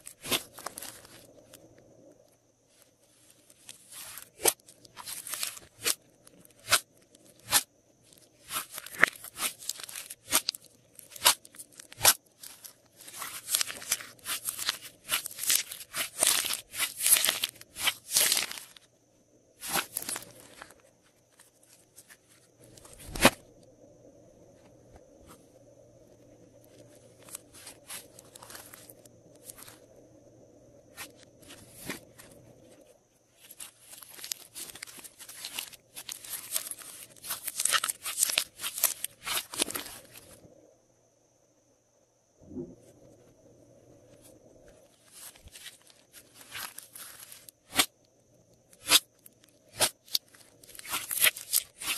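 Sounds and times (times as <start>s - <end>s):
slime squishing and popping: 8.5s - 18.7s, 49.7s - 51.9s.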